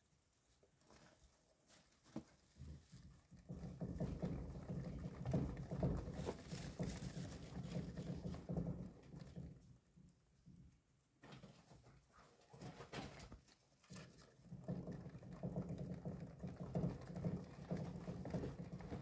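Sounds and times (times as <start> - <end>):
gerbil feet pattering in wheel: 0.8 - 9.8, 11.2 - 19.0
exercise wheel humming: 3.3 - 9.8, 14.4 - 19.0.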